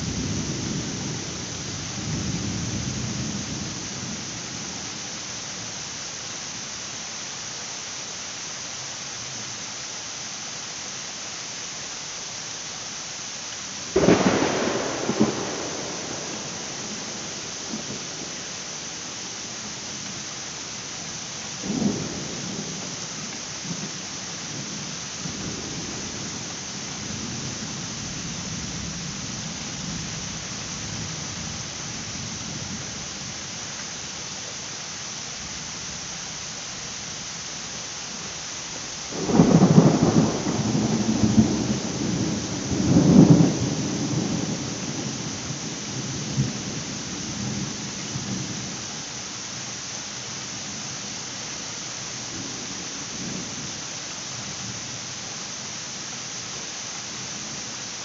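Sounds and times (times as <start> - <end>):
heavy rain hiss: 0.0 - 58.0
loud thunderclap: 14.0 - 18.3, 39.2 - 45.0
low rumbling thunder: 14.0 - 18.6, 21.6 - 31.6, 39.2 - 48.7.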